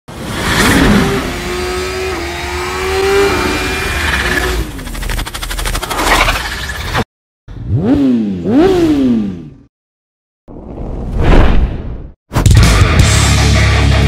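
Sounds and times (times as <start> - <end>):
whoosh: 10.5 - 12.2.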